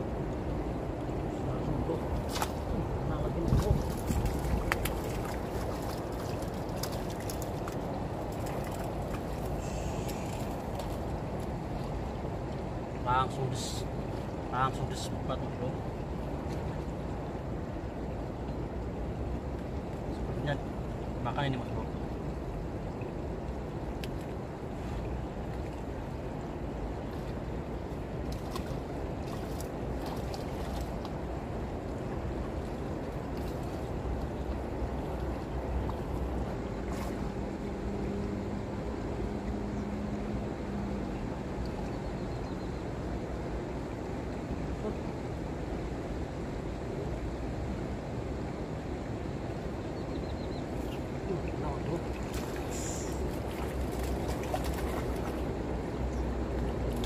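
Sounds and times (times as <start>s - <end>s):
wind on microphone: 0.0s - 12.5s
river water flowing: 0.0s - 57.0s.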